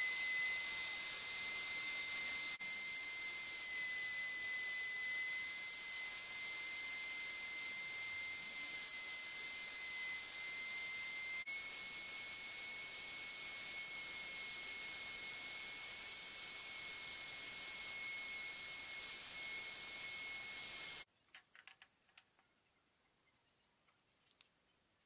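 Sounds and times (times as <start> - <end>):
electric router whining: 0.0 - 21.1
wooden pieces clicking: 21.3 - 22.3.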